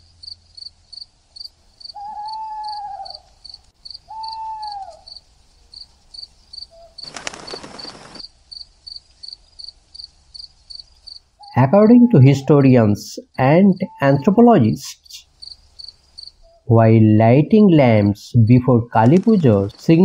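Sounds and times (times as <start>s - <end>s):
insects chirping: 0.0s - 16.7s.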